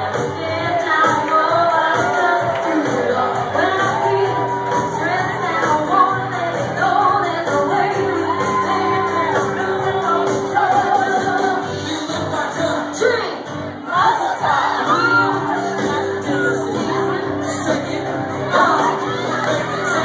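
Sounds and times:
crowd shouting and singing along: 0.0s - 20.0s
loud live music: 0.0s - 20.0s
person singing: 0.0s - 20.0s.

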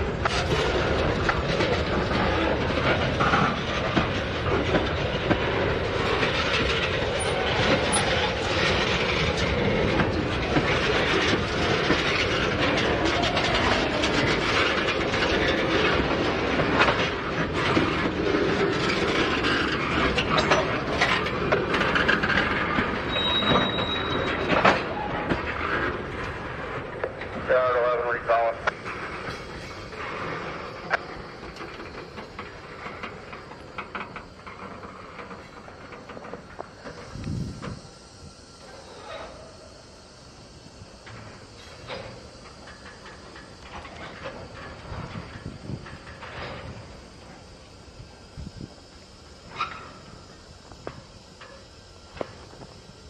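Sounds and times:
train wheels clacking over rail joints: 0.0s - 37.8s
train wheel squeal: 4.7s - 16.1s, 17.1s - 26.0s.

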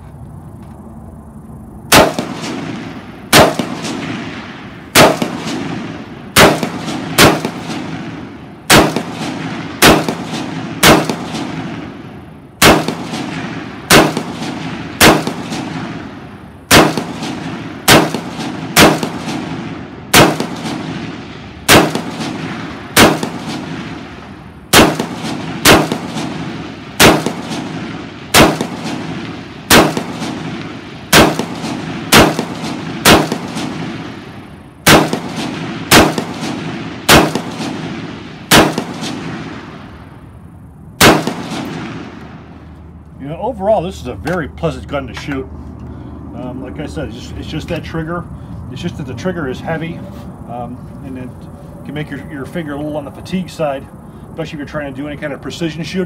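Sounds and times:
rifle shots with echo: 1.9s - 40.3s, 41.0s - 42.7s.

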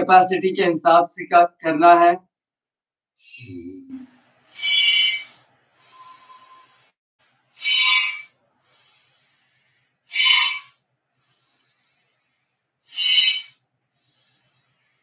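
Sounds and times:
longer whistling breaths: 4.5s - 7.0s, 7.6s - 15.0s.

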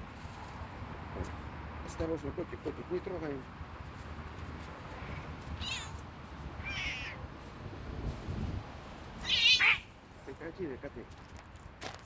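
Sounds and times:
cats crying: 5.0s - 6.0s, 6.6s - 7.2s, 9.2s - 9.9s.

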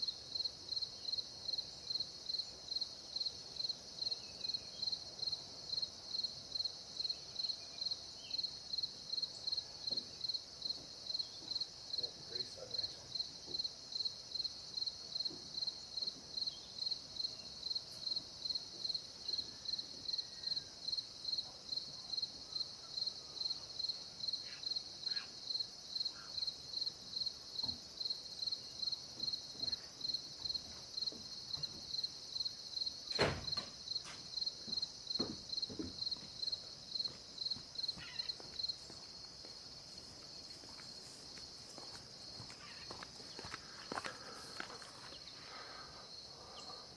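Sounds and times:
high insect drone: 0.0s - 46.9s
insect chirping in pulses: 22.1s - 46.9s.

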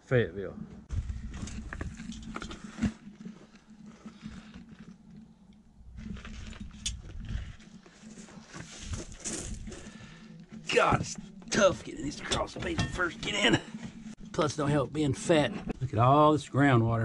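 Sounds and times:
body scraping against opening: 0.9s - 11.7s.

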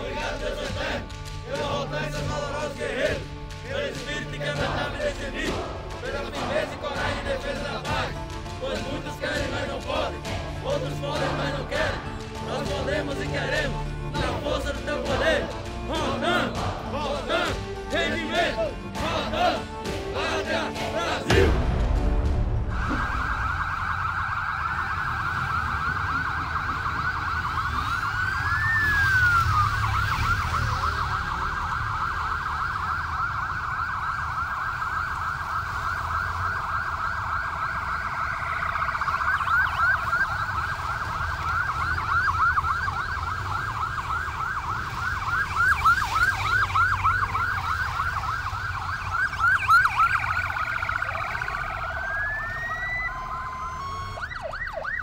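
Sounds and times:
police sirens wailing and yelping: 0.0s - 21.6s, 22.6s - 55.0s
low rumble of vehicle engines: 0.0s - 55.0s.

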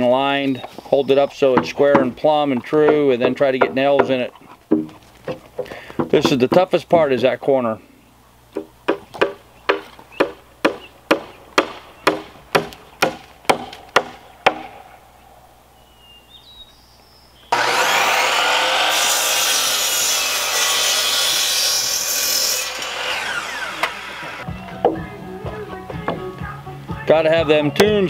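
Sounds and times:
miter saw cutting wood: 17.5s - 24.5s.

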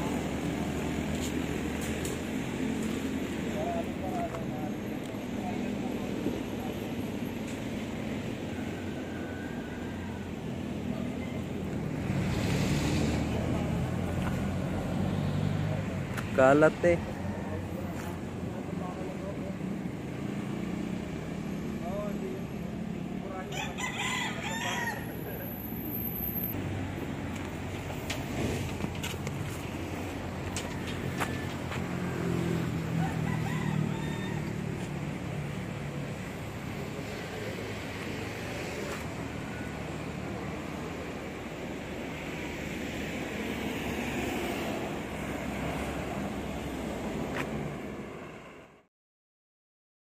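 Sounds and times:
traffic: 0.0s - 48.9s
rooster crowing: 8.5s - 10.7s, 23.4s - 25.4s, 30.6s - 35.0s.

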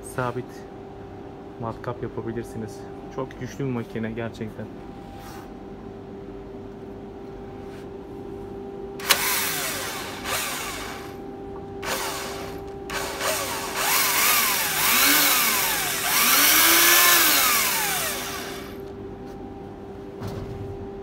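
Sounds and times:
steady hum: 0.0s - 21.0s
drill motor whine: 9.0s - 11.2s, 11.8s - 18.9s.

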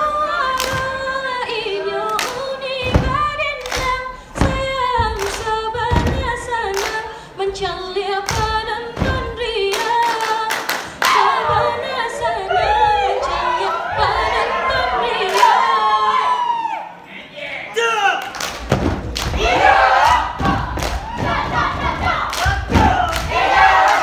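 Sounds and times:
person singing unaccompanied: 0.0s - 15.8s
slaps and claps: 0.6s - 1.0s, 2.2s - 4.6s, 5.2s - 7.0s, 9.7s - 11.2s, 18.2s - 24.0s
feet thudding on stage: 2.8s - 6.6s
crowd shouting and cheering: 11.0s - 18.4s, 19.1s - 24.0s.

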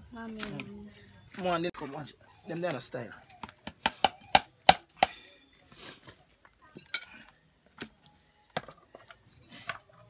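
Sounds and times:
cutlery and dishes clinking: 6.8s - 7.3s.

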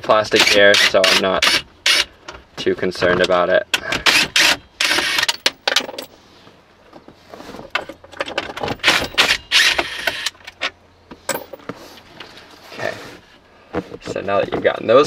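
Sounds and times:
small metallic rattles: 3.7s - 6.2s, 7.5s - 12.4s.

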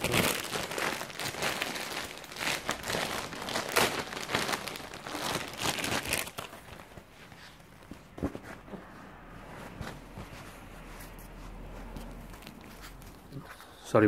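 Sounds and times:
packaging crinkling: 0.0s - 7.6s.

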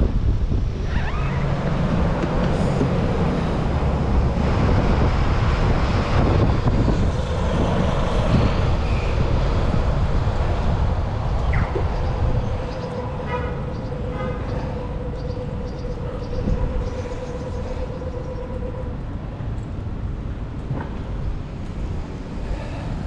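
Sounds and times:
road traffic: 0.0s - 23.0s
wind rushing over microphone: 0.0s - 23.0s.

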